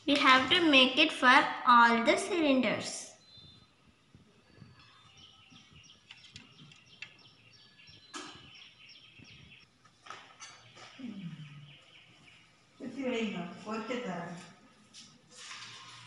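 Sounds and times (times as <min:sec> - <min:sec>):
small birds chirping: 0:02.2 - 0:14.3.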